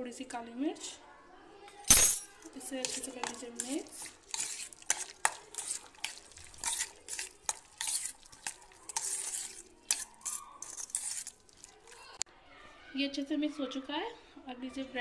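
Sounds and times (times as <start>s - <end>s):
spoon clinking on steel: 1.9s - 11.9s
spoon scraping steel bowl: 1.9s - 12.2s.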